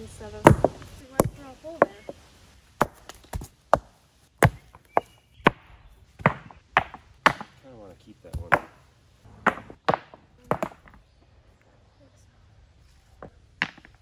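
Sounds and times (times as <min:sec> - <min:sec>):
stones knocking against rocks: 0:00.4 - 0:02.2, 0:02.8 - 0:07.6, 0:08.3 - 0:08.8, 0:09.4 - 0:11.0, 0:13.2 - 0:14.0.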